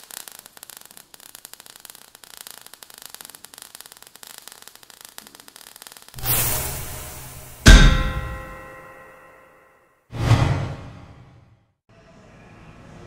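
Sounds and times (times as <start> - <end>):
hiss: 0.0 - 8.6
crackling sparks: 0.0 - 9.0.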